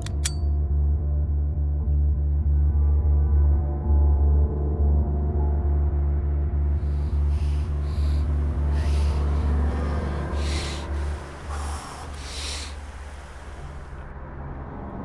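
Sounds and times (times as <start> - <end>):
deep pulsing drone: 0.0 - 15.0
sharp heavy breaths through nose: 6.8 - 14.1.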